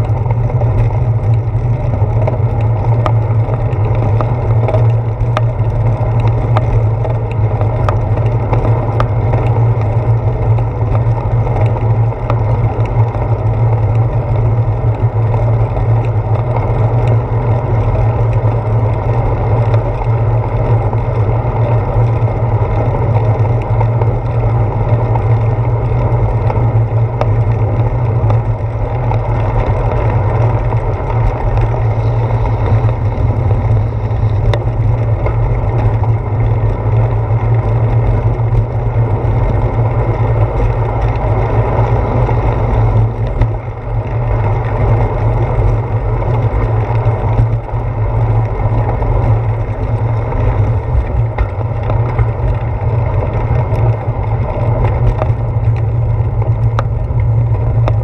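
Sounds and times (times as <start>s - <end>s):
tyres on pavement: 0.0s - 58.0s
wind buffeting: 27.1s - 58.0s.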